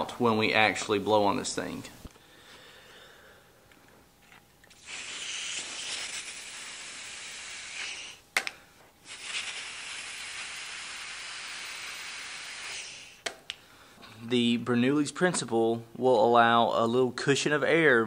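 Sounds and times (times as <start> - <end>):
breathy hiss of blown air: 4.7 - 8.3, 9.0 - 13.3.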